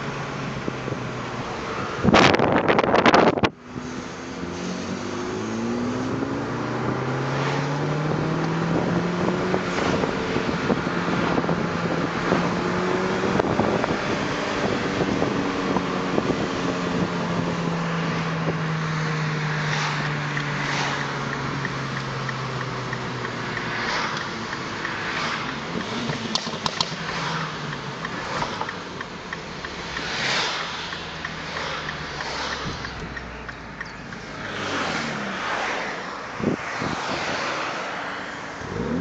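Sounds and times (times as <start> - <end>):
car engine revving: 0.0 - 39.0
road and wind noise: 0.0 - 39.0.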